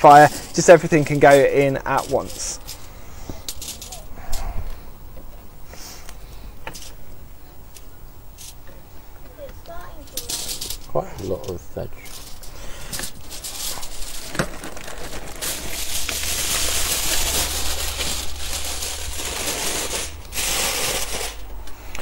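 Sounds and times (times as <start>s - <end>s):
tin foil crinkling: 0.0s - 4.4s, 10.0s - 21.6s.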